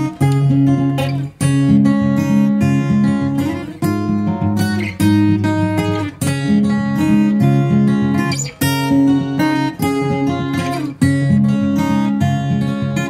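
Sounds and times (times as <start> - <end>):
strummed acoustic guitar chords: 0.0 - 13.0.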